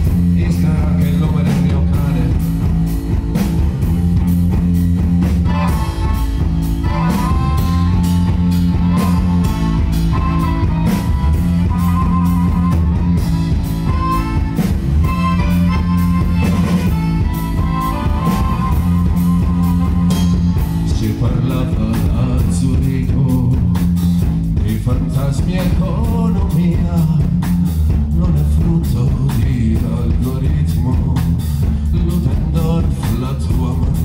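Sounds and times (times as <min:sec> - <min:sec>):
drum kit beat: 0:00.0 - 0:34.0
electric bass: 0:00.0 - 0:34.0
piano accordion melody: 0:05.2 - 0:21.5.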